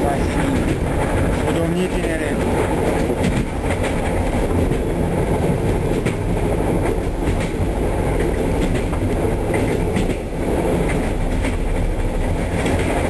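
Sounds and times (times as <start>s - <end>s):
train rumbling inside carriage: 0.0s - 13.0s.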